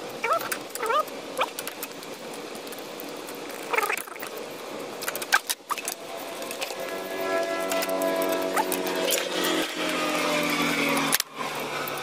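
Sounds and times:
puppies yipping and whining: 0.2 - 1.5.

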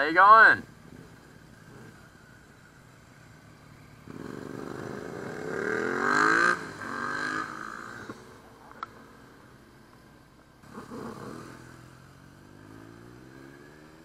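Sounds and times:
motorcycle engine accelerating past: 0.7 - 9.3, 10.6 - 14.0.

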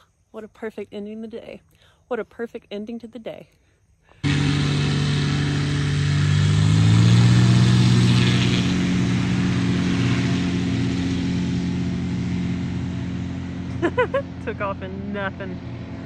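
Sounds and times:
light aircraft engine and propeller: 4.1 - 16.0.

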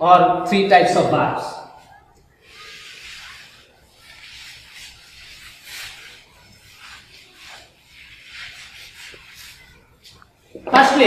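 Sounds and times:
chalk wiped off blackboard: 1.8 - 10.5.

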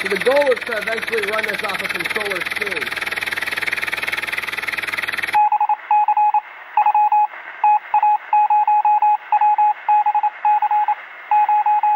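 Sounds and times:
engine running: 0.0 - 11.9
electronic beeping: 5.3 - 11.9.

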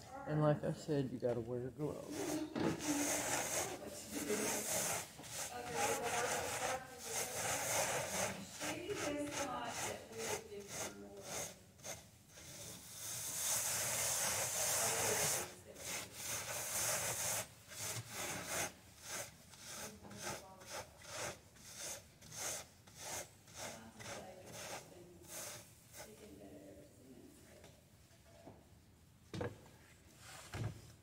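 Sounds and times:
hand rubbing seed heads on screen: 2.0 - 26.3.

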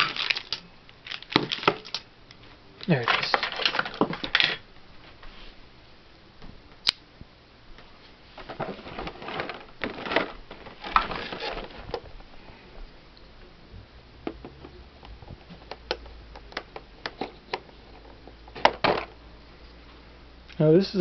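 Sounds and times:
cardboard rustling: 8.3 - 12.3.

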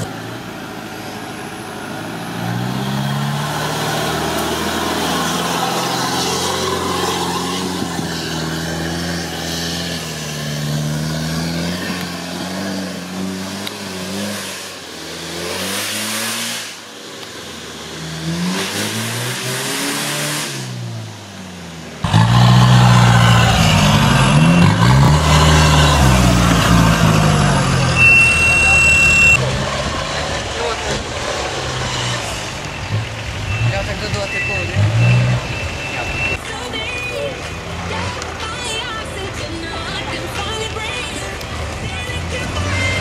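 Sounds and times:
engine revving under load: 1.8 - 16.9, 17.9 - 21.2, 22.0 - 36.4.

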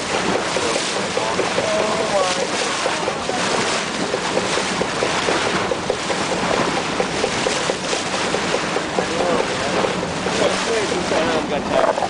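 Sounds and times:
water rushing past boat hull: 0.0 - 12.0.

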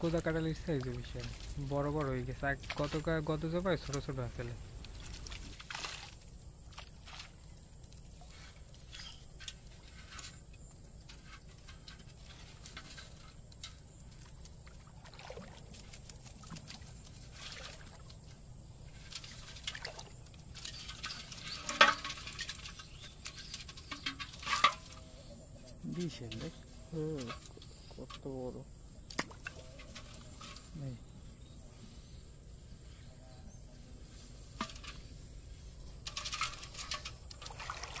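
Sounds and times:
water trickling: 0.0 - 8.4, 13.6 - 25.0, 36.0 - 38.0
small splashes in a pot: 11.6 - 25.0, 29.1 - 30.7, 36.0 - 38.0
fish splashing in water: 37.4 - 38.0.

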